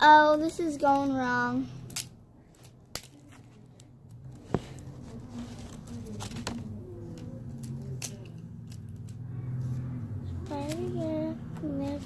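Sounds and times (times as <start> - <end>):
handling paper and tape: 0.1 - 12.0.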